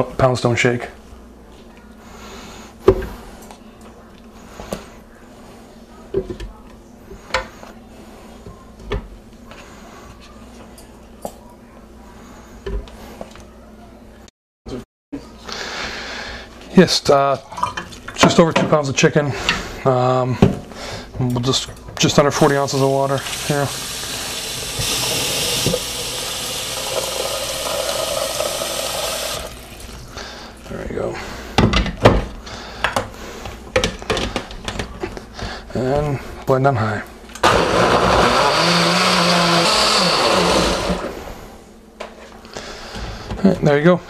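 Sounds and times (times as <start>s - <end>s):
faucet water filling blender jar: 22.6s - 30.0s.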